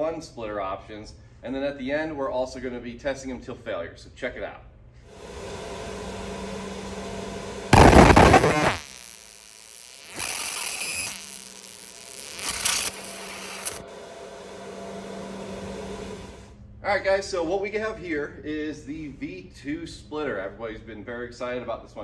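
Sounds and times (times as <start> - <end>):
steady hum: 5.2 - 17.1
laser engraver buzzing: 7.7 - 13.9.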